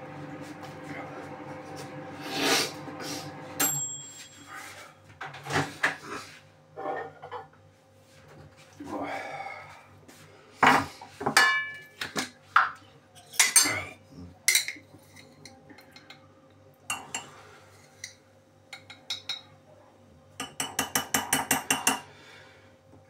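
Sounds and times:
dishes and cutlery clinking: 10.6 - 13.9, 14.5 - 16.2, 20.4 - 22.1.

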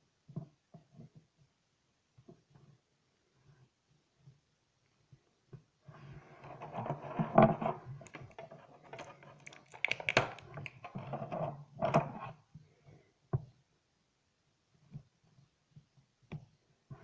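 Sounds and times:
plastic packaging crinkling: 9.0 - 10.8.

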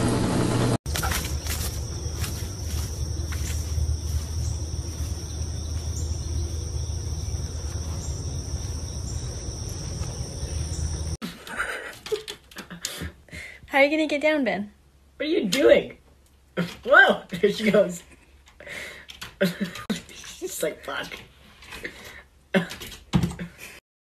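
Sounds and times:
insects chirring: 0.9 - 11.2.

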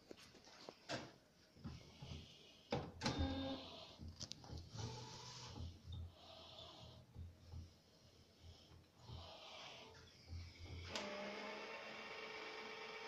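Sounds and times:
printer motor whirring: 10.8 - 13.0.

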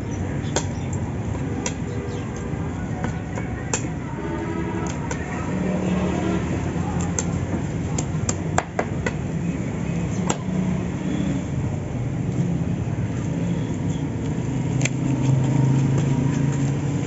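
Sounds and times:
road traffic rumble: 0.0 - 17.0
cleaver chopping on wooden block: 8.0 - 9.2.

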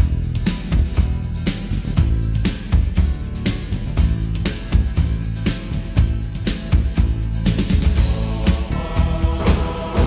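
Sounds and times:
bass line: 0.0 - 10.0
drum beat: 5.9 - 10.0.

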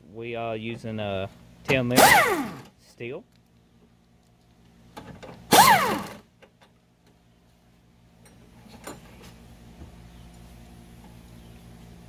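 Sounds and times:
air impact wrench whine: 1.9 - 2.7, 5.5 - 6.3.

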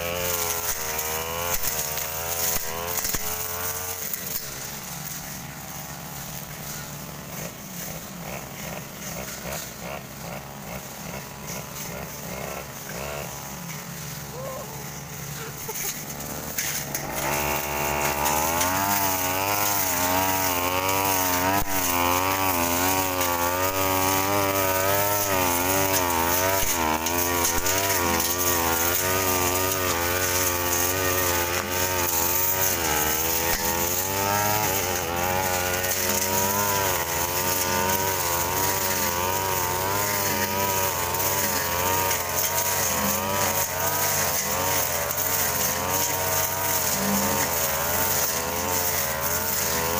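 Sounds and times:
brush cutter engine revving: 0.0 - 49.9.

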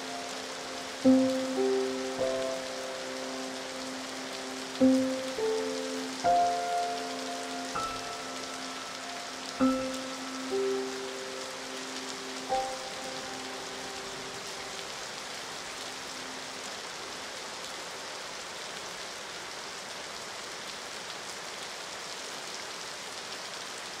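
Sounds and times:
held music notes: 0.0 - 14.8
rain falling: 0.0 - 24.0.

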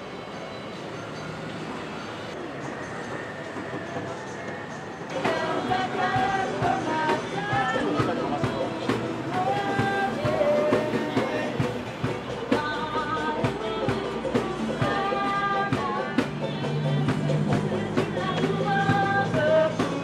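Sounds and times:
music with drum beat: 3.7 - 20.0.

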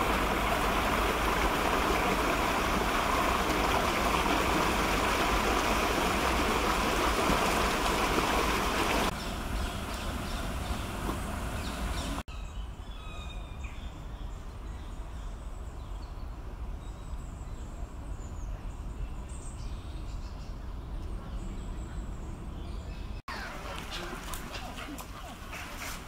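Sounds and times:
small birds chirping: 8.8 - 26.0.

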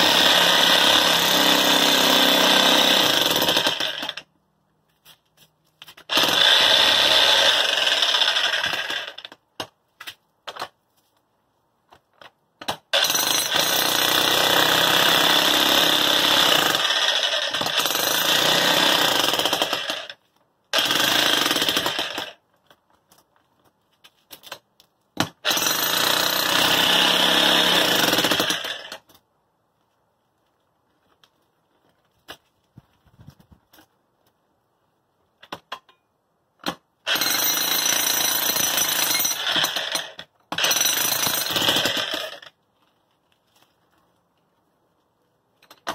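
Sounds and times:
jackhammer hammering concrete: 0.0 - 4.2, 13.0 - 20.0, 20.8 - 22.4, 25.5 - 28.8, 37.1 - 42.4.

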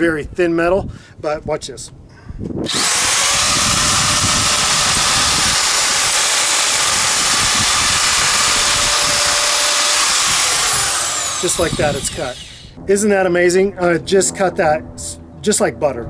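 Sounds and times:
electric nibbler chopping metal: 2.7 - 12.8.

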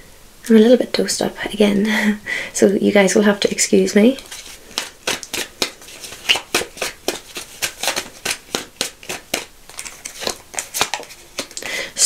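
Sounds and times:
cards being shuffled: 4.2 - 11.6.

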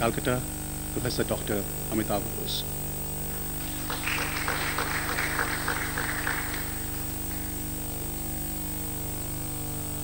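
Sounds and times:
electrical mains hum: 0.0 - 10.0
audience applause: 3.3 - 8.2.

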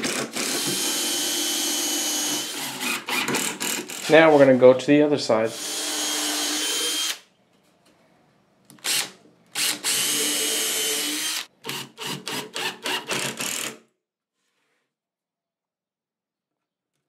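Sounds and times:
cordless drill whining: 0.0 - 4.2, 5.6 - 7.2, 8.8 - 13.8.

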